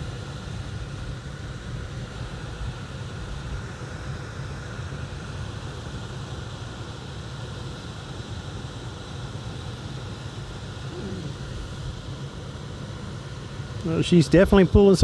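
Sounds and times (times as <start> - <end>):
blower motor humming: 6.5 - 14.9.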